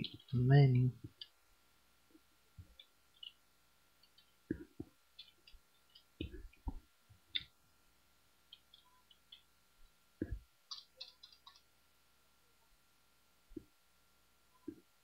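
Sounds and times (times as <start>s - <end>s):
computer keyboard keystrokes: 10.7s - 11.7s.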